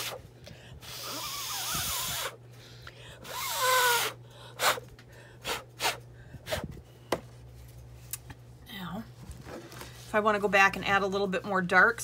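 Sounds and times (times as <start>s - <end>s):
person blowing hard: 0.8s - 2.4s, 3.1s - 6.8s.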